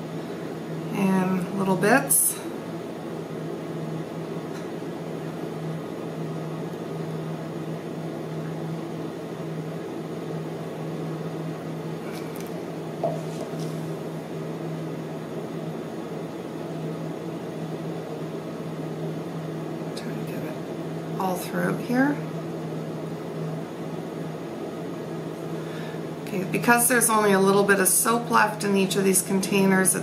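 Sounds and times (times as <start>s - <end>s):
low mechanical hum: 0.0s - 30.0s.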